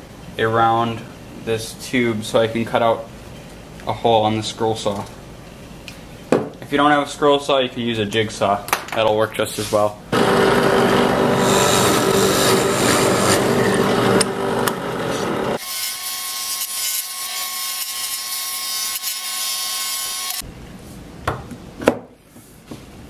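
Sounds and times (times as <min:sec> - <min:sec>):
drill press boring plywood: 0:10.2 - 0:18.2
scroll saw cutting plywood: 0:10.2 - 0:20.4.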